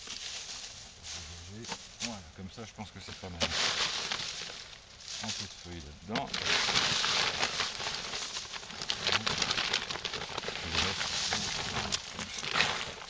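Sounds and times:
dry leaves and straw rustling: 0.0 - 13.0
plastic bag crinkling: 3.2 - 13.0.

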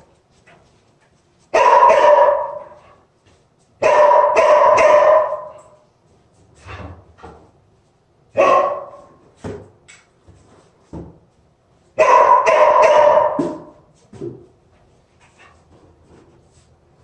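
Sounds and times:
dog barking long barks: 1.5 - 2.8, 3.8 - 5.8, 8.4 - 9.1, 12.0 - 13.7.

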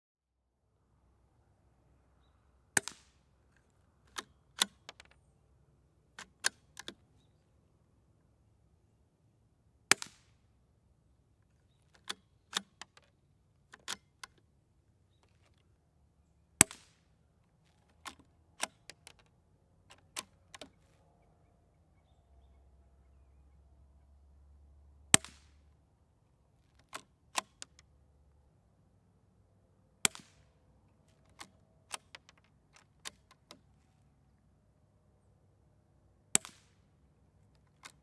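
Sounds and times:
rifle bolt clicks: 2.8 - 5.2, 6.2 - 7.0, 9.9 - 10.3, 11.7 - 14.4, 17.7 - 19.3, 19.9 - 20.9, 25.1 - 25.6, 26.7 - 27.9, 30.0 - 33.8, 36.3 - 38.0
suppressed rifle shots: 9.9 - 10.4, 30.0 - 30.5.

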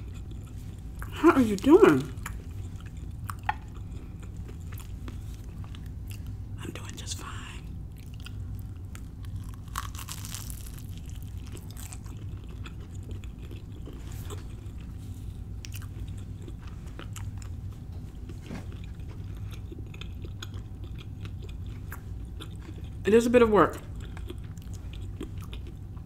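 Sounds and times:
crunching fried pastry: 8.0 - 23.0.

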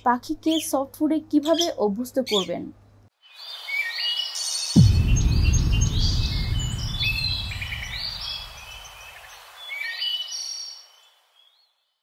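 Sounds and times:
small birds chirping: 0.3 - 2.7
deep rumble: 4.8 - 9.2.

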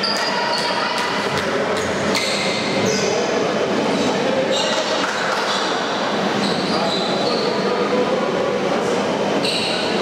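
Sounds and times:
voices echoing in a hall: 0.0 - 10.0
sneaker squeaks on court: 6.4 - 7.6.

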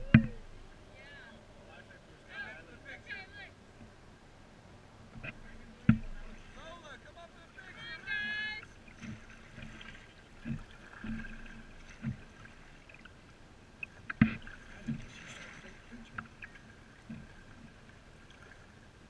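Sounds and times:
kayak paddles knocking: 0.0 - 0.8, 5.1 - 18.9.

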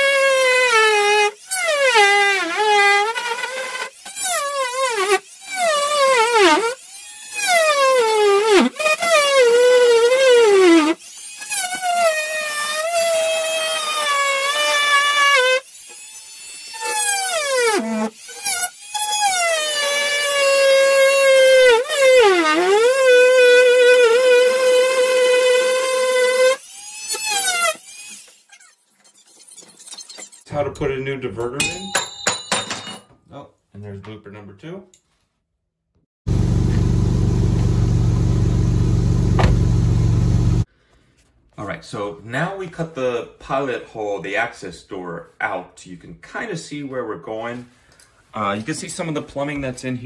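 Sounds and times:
multi-tool cutting drywall whine: 0.0 - 30.5.

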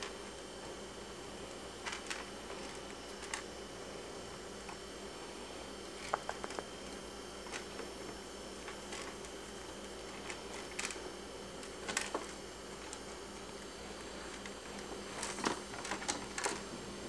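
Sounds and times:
steady background hum: 0.0 - 17.0
rats clicking and scratching in cage: 1.4 - 3.5, 5.9 - 16.7.

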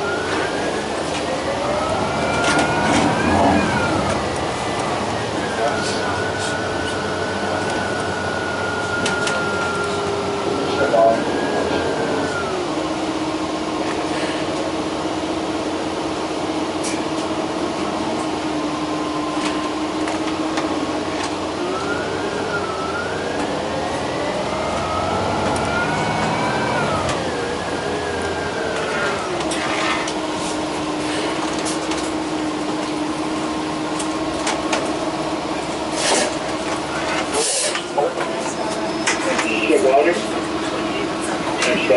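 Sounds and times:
bus engine hum: 0.0 - 41.9
drivetrain whine: 0.0 - 41.9.

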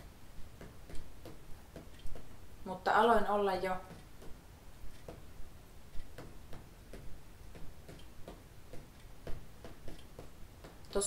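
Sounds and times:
fingertip tapping on plastic board: 6.0 - 11.0.

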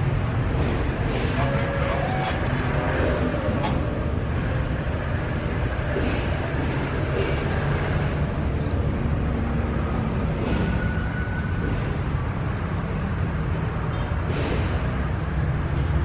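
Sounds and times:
diesel locomotive rumbling: 0.0 - 16.0.

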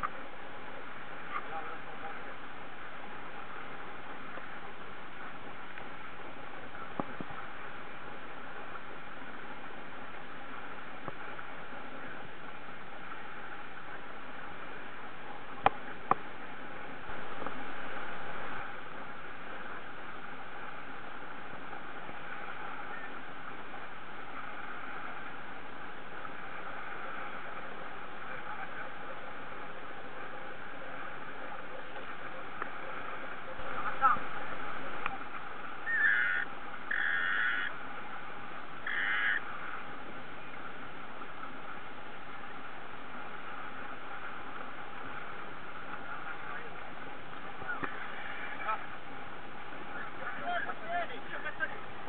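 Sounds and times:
water rushing: 0.0 - 52.0.

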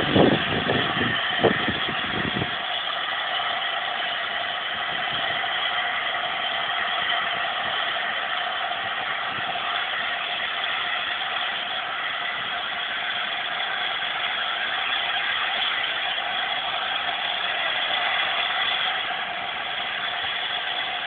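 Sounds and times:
steam hissing from locomotive: 0.0 - 21.0.

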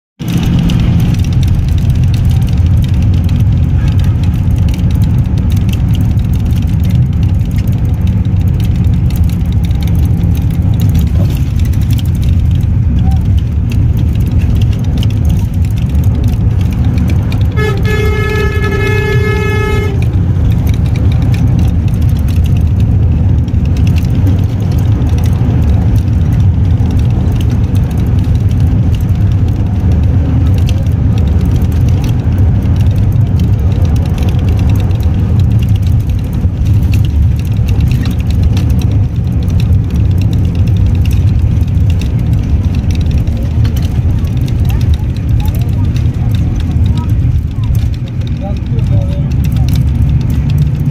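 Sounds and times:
vehicle rumble from inside: 0.2 - 50.9
horn steady note: 17.5 - 20.2.

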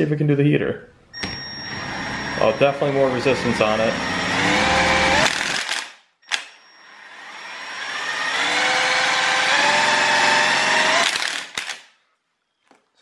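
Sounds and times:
turbine generator whine: 1.2 - 5.2
sharp click: 5.5 - 6.6, 11.4 - 11.9.

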